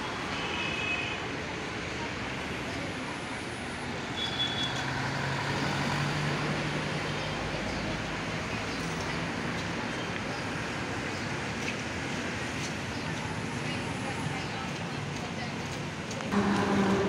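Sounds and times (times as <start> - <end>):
road traffic passing: 1.2 - 17.0
low hum of vehicle engine: 16.3 - 17.0.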